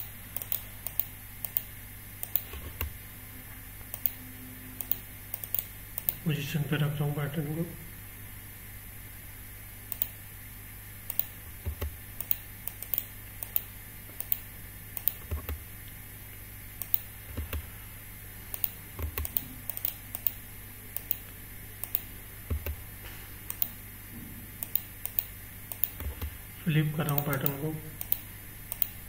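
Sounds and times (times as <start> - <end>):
keyboard and mouse clicking: 0.0 - 3.0, 3.9 - 4.2, 4.8 - 6.2, 9.9 - 10.2, 11.1 - 15.7, 16.8 - 17.7, 18.5 - 20.4, 21.0 - 21.2, 21.8 - 22.8, 23.5 - 23.8, 24.6 - 26.4, 27.0 - 29.0
faint steady hum: 0.0 - 29.0.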